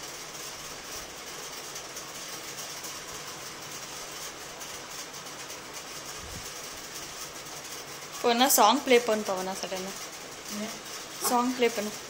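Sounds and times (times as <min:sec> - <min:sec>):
room noise hiss: 0:00.0 - 0:12.0.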